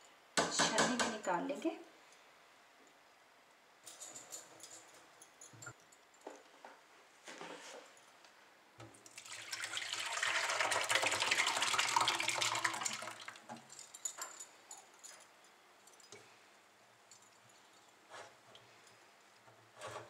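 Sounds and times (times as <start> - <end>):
liquid splashing pour: 9.1 - 13.6.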